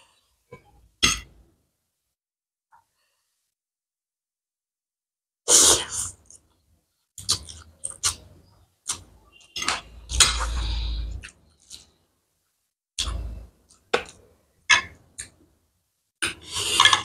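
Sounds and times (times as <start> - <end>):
person slurping noodles: 16.2 - 17.0.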